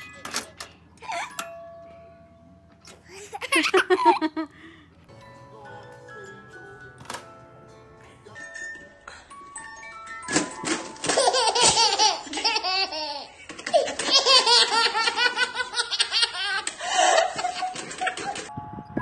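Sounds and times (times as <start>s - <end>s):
baby belly laughing: 3.1s - 4.5s, 11.0s - 18.5s
woman laughing loudly: 3.2s - 4.6s, 11.6s - 18.5s.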